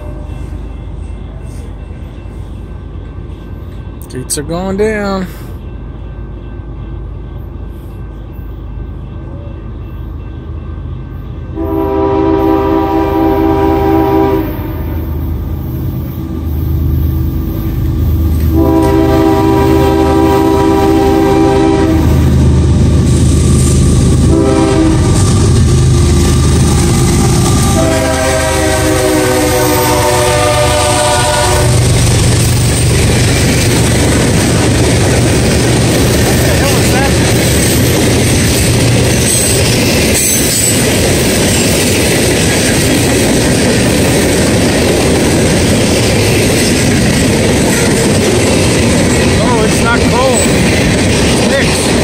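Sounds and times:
train air horn blasts: 0:00.0 - 0:00.5, 0:11.5 - 0:15.3, 0:18.5 - 0:22.3, 0:24.2 - 0:32.0
locomotive engine rumble: 0:11.6 - 0:52.0.

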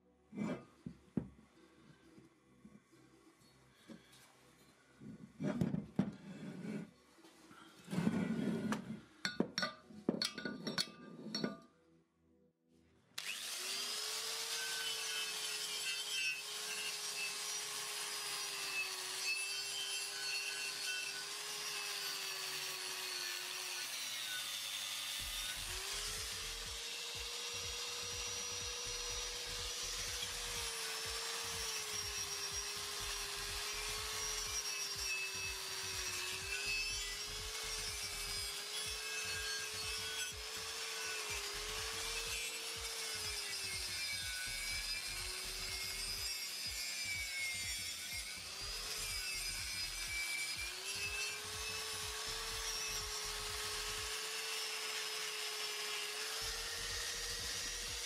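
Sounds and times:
angle grinder grinding metal: 0:13.2 - 0:58.0.

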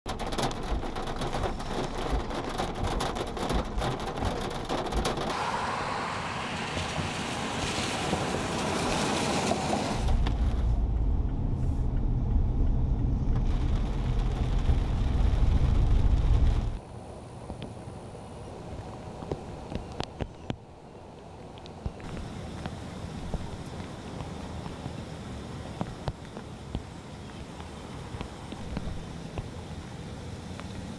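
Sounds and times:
rain pattering on windshield: 0:00.1 - 0:05.4, 0:06.5 - 0:11.1, 0:13.2 - 0:16.8, 0:21.5 - 0:30.9
low road rumble inside car: 0:00.1 - 0:16.8, 0:21.9 - 0:30.9
wet tyres swishing past: 0:05.3 - 0:10.7.

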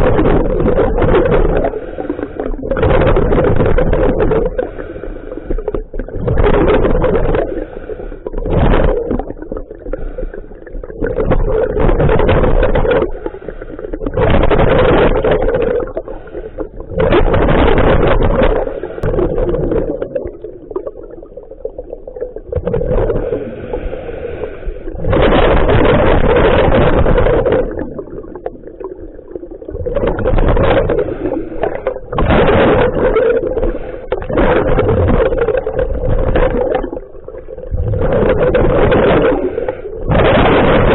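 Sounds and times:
diver exhaling bubbles underwater: 0:00.0 - 0:40.9
diver inhaling through regulator: 0:01.7 - 0:02.6, 0:04.5 - 0:05.9, 0:07.4 - 0:08.4, 0:09.8 - 0:10.7, 0:13.1 - 0:14.0, 0:15.8 - 0:16.9, 0:18.5 - 0:19.3, 0:23.0 - 0:25.2, 0:30.8 - 0:32.1, 0:33.4 - 0:34.3, 0:39.2 - 0:40.1.

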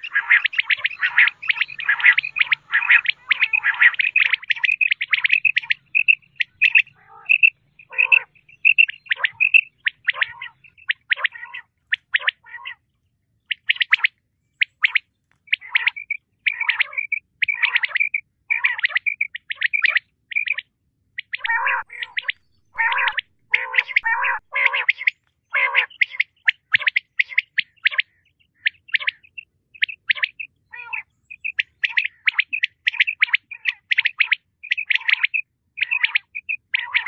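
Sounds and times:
quail calling: 0:00.0 - 0:12.8, 0:13.5 - 0:37.0
rough low bird notes: 0:21.2 - 0:25.1.

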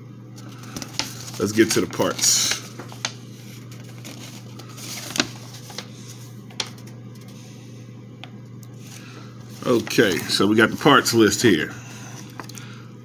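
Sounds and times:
steady low hum: 0:00.0 - 0:13.0
paper booklet rustling: 0:00.4 - 0:07.4, 0:08.8 - 0:12.6.

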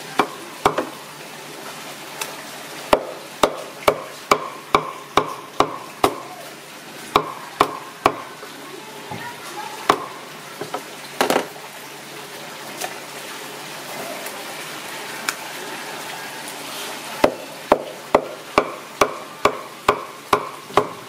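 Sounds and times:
knife chopping meat on wood: 0:02.9 - 0:06.3, 0:17.2 - 0:21.0.

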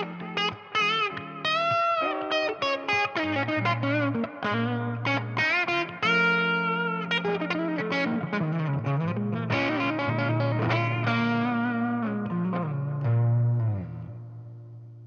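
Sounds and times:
distorted electric guitar lead: 0:00.0 - 0:15.0.

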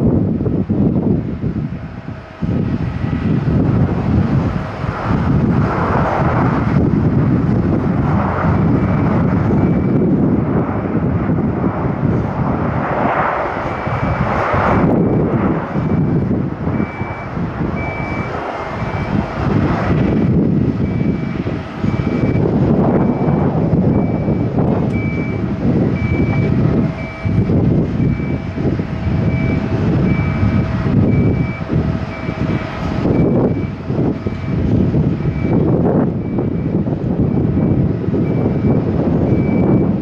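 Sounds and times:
jet engines roaring: 0:00.0 - 0:40.0
wind gusting on microphone: 0:00.0 - 0:40.0
high beep: 0:16.7 - 0:19.2, 0:20.8 - 0:32.5, 0:37.3 - 0:39.9.

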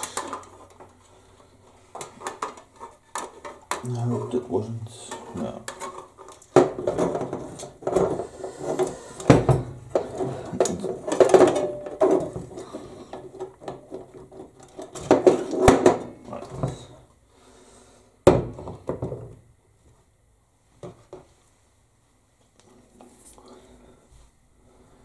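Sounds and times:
metal parts clattering and scraping: 0:02.0 - 0:16.9.

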